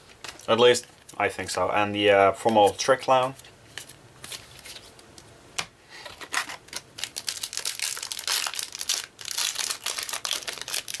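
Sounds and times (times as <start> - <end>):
foil wrapper crinkling: 6.3 - 11.0.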